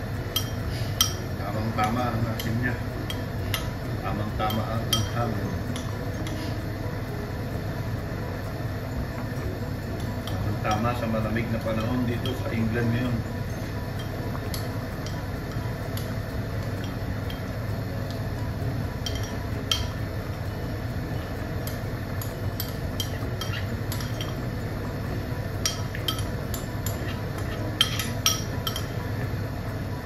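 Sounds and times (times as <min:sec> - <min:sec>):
steady low hum: 0:00.0 - 0:30.0
spoon clinking against metal pot: 0:25.6 - 0:29.0.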